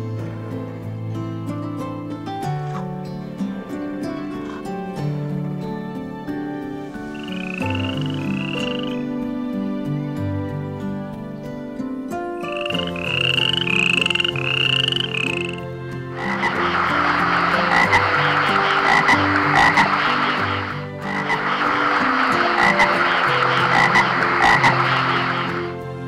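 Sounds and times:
frogs chirping and croaking: 7.1s - 9.1s, 12.4s - 26.0s.

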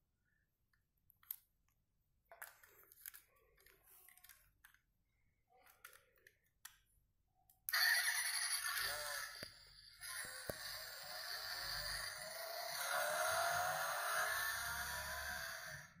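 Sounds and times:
small plastic clicks: 0.7s - 7.8s.

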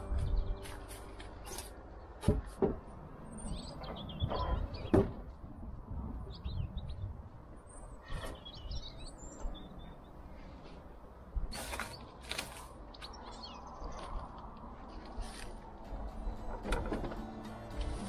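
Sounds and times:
small birds chirping: 3.2s - 5.2s, 6.2s - 10.6s, 11.5s - 14.6s.

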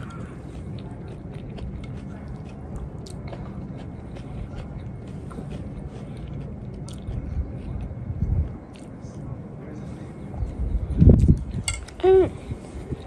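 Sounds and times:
person chewing food: 0.0s - 8.0s.

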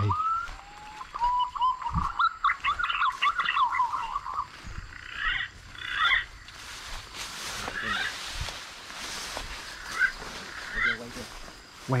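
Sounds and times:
pigeon whistled calls: 0.0s - 4.5s.

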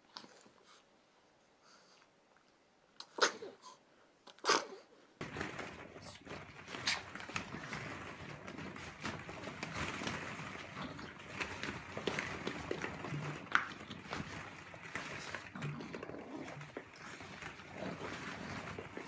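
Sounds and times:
plastic balls rattling: 5.2s - 19.0s.

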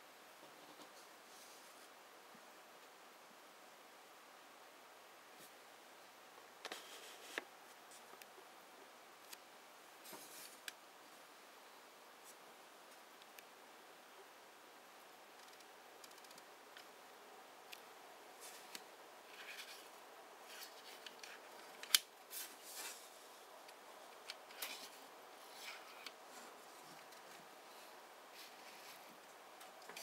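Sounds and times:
small clicks and rubbing on metal: 15.4s - 16.9s.

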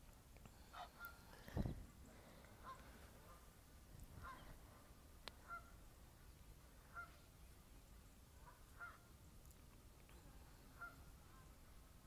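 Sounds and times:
geese honking faintly: 0.6s - 1.3s, 2.1s - 5.9s, 6.8s - 7.5s, 8.3s - 9.2s, 10.2s - 11.8s.

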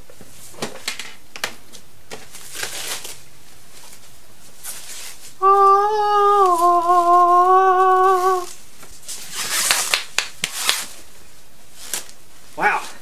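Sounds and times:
plastic wrapping crinkling: 2.1s - 13.0s
person humming: 5.4s - 8.6s.

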